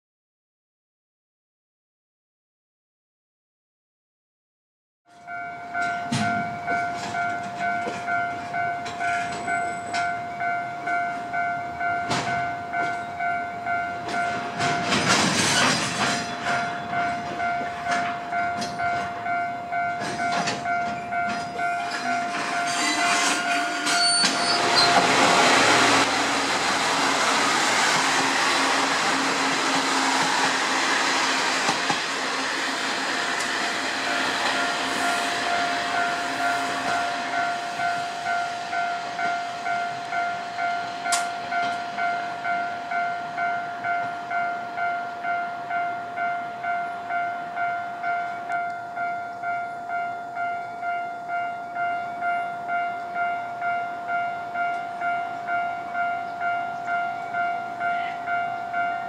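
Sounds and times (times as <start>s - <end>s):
diesel railcar engine: 5.1s - 59.0s
wheels on rails: 14.0s - 45.0s.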